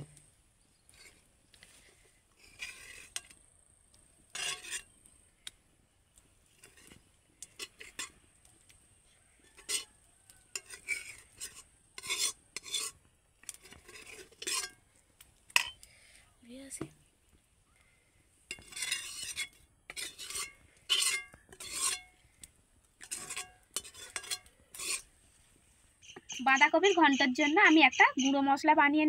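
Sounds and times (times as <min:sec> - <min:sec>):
metal spoon scraping metal pan: 0:02.4 - 0:03.4, 0:04.3 - 0:05.0, 0:06.6 - 0:08.2, 0:09.6 - 0:09.9, 0:10.5 - 0:14.8, 0:15.6 - 0:15.9, 0:18.5 - 0:22.2, 0:23.0 - 0:25.1.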